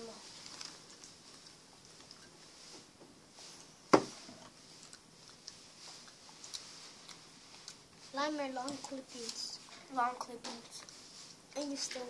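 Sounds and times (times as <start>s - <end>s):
plastic bottle knocking on table: 3.9s - 4.1s.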